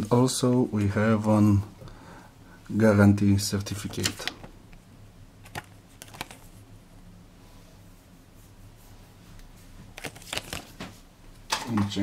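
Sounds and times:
paper card rustling and tapping: 5.4s - 6.5s, 9.9s - 11.0s.

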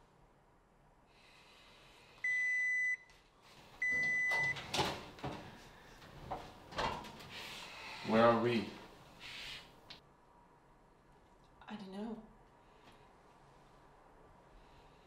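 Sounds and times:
knocks and clatters of handling: 4.0s - 7.3s.

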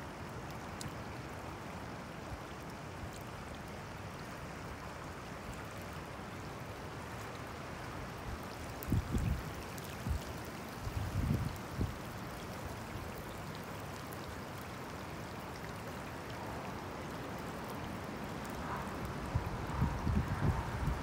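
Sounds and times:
wind buffeting microphone: 8.9s - 10.2s, 10.8s - 11.9s, 19.1s - 21.0s.

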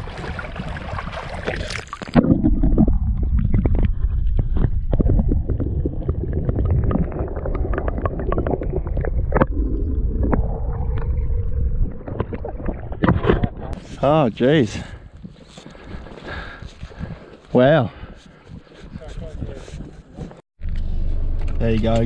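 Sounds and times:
wind: 0.0s - 7.2s, 8.3s - 22.0s
water at lake edge: 0.0s - 20.4s
sharp underwater clicks and knocks: 1.5s - 5.3s, 12.1s - 13.8s.

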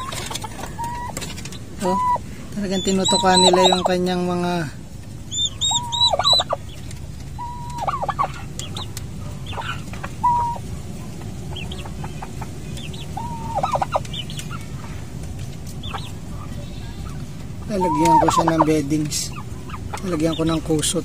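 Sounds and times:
adult fowl clucking call: 0.0s - 1.2s, 1.8s - 4.0s, 5.3s - 6.6s, 7.4s - 10.6s, 11.5s - 14.6s, 17.6s - 20.1s
turkey poults peeping: 0.0s - 21.0s.

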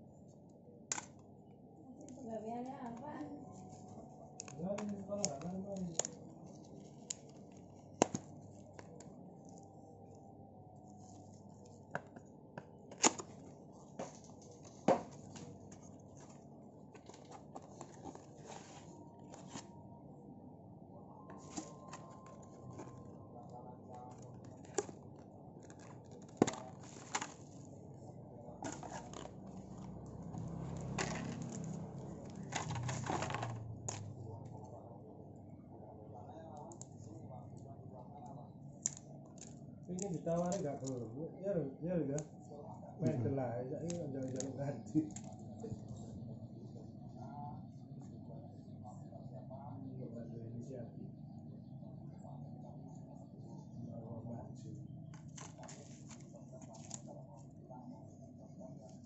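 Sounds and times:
plastic and bubble wrap crinkling: 23.9s - 27.6s, 28.6s - 34.0s.

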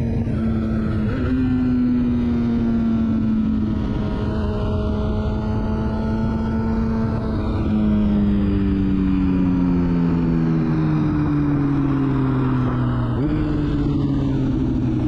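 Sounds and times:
motorcycle engine cruising: 0.0s - 15.0s
wind and road noise: 0.0s - 15.0s.

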